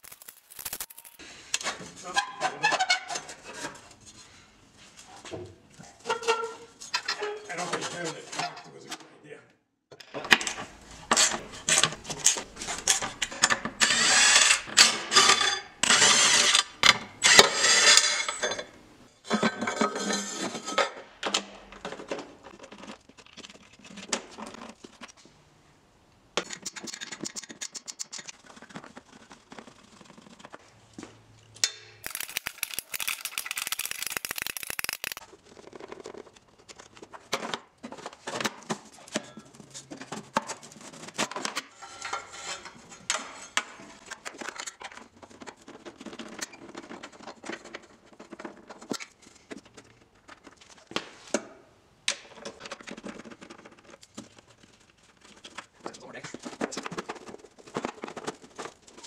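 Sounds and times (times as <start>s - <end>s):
ratchet wrench clicking: 32.0s - 35.2s.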